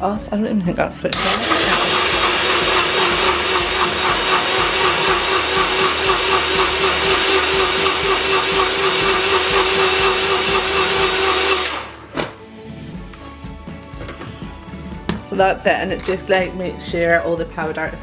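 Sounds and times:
blender motor running: 0:01.2 - 0:12.1.

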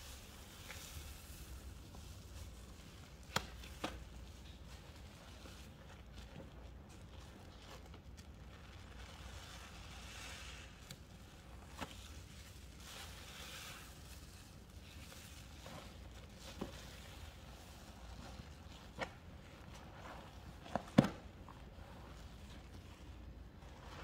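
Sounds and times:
wet sponge squishing: 0:00.0 - 0:24.0.

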